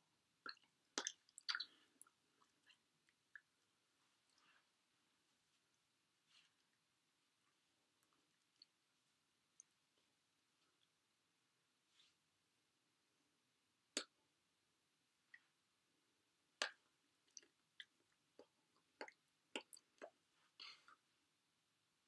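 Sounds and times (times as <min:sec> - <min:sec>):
hands clapping and lip smacks: 0:13.9 - 0:14.2, 0:16.6 - 0:20.2.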